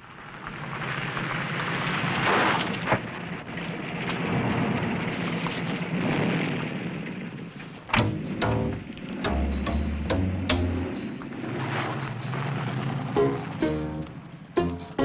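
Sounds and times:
street traffic rumble and hiss: 0:07.3 - 0:15.0
sharp knocks: 0:07.9 - 0:10.7.

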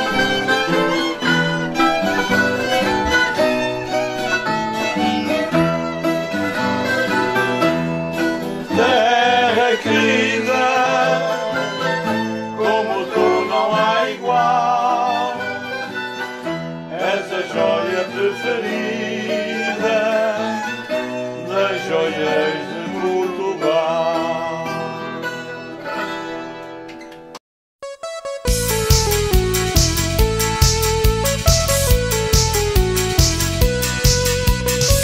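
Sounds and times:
violin melody with vibrato: 0:00.0 - 0:26.4
guitar accompaniment: 0:00.0 - 0:35.0.

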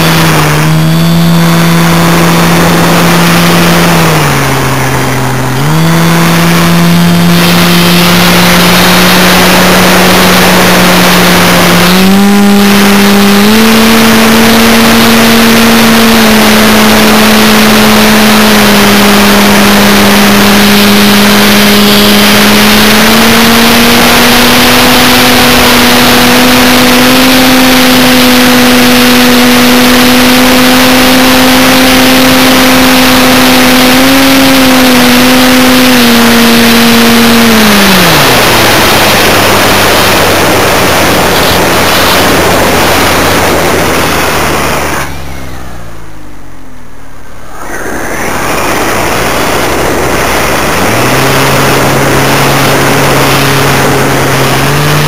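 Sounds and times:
model aircraft motor droning: 0:00.0 - 0:55.0
wind rushing: 0:46.8 - 0:53.2.

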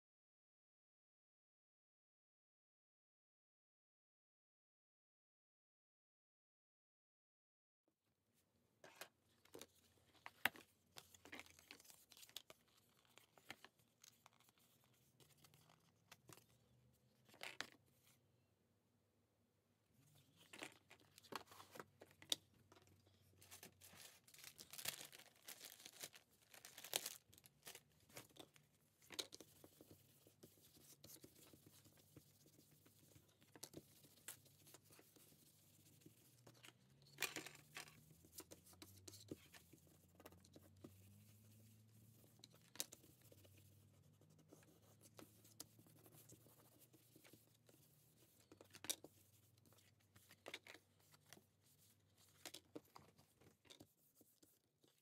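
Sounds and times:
paper tissue rustling: 0:23.4 - 0:28.3.

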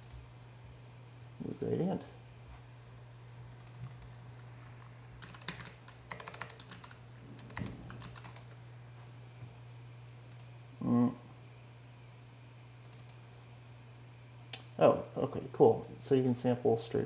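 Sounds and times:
steady low hum: 0:00.0 - 0:17.0
computer keyboard typing: 0:03.6 - 0:04.2, 0:05.2 - 0:08.6, 0:12.9 - 0:13.2.

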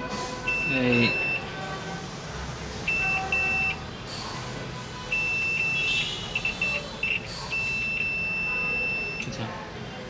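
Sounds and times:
multimeter beeping: 0:00.5 - 0:01.5, 0:02.9 - 0:03.8, 0:05.0 - 0:09.3.

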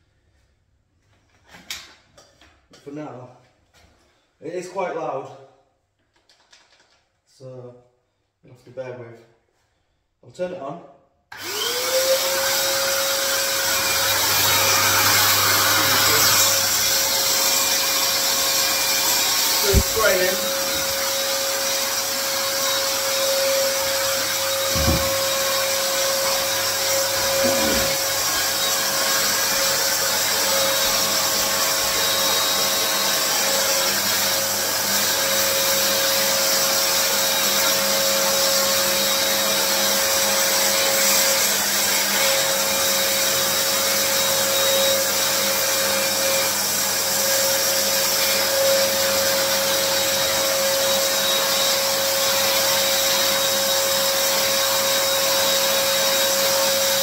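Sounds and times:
paint sprayer turbine whine: 0:11.3 - 0:40.6.

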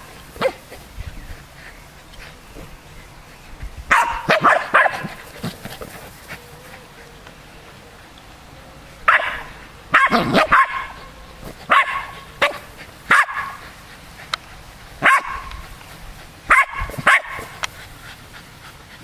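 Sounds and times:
dogs barking: 0:00.0 - 0:00.8, 0:03.9 - 0:05.6, 0:09.0 - 0:14.0, 0:15.0 - 0:15.8, 0:16.5 - 0:17.7.

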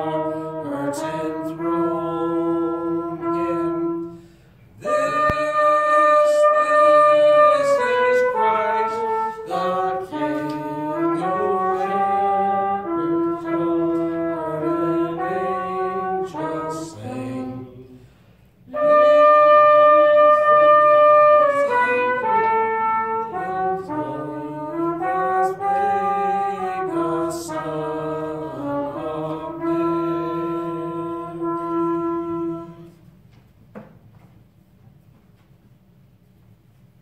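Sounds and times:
slow brass-like melody: 0:00.0 - 0:33.2
held bass notes: 0:04.8 - 0:17.8.

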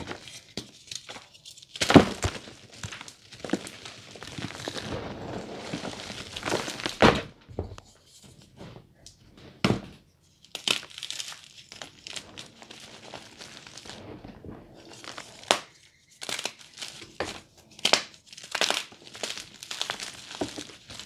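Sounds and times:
chalk chunks crunching: 0:00.0 - 0:07.1, 0:10.4 - 0:14.1, 0:14.8 - 0:21.0.

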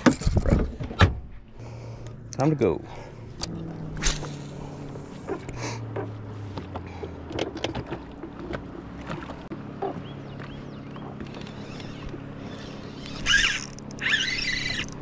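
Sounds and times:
electric motor humming: 0:02.9 - 0:06.4, 0:11.2 - 0:15.0
water lapping against boat hull: 0:03.0 - 0:15.0
fishing reel clicks and taps: 0:12.8 - 0:15.0.

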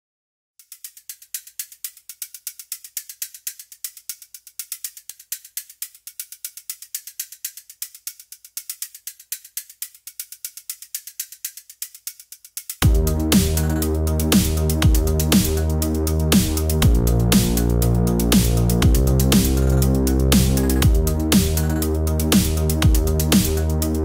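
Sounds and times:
rapid mechanical clicking: 0:00.6 - 0:24.0.

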